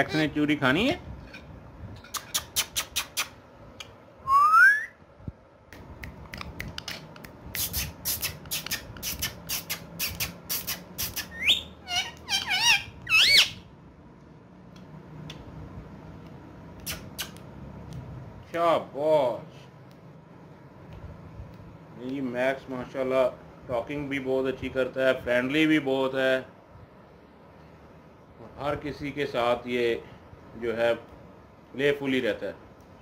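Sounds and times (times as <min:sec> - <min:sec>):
sharp clicks: 0:05.7 - 0:11.3
parakeet whistling and chirping: 0:10.0 - 0:13.7.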